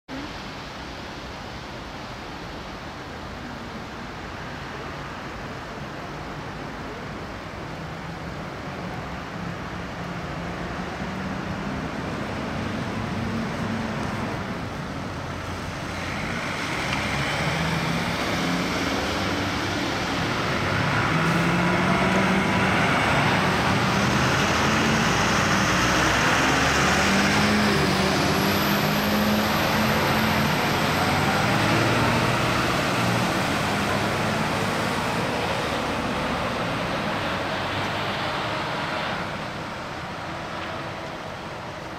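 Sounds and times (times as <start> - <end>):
fire engines driving past: 0.1 - 41.9.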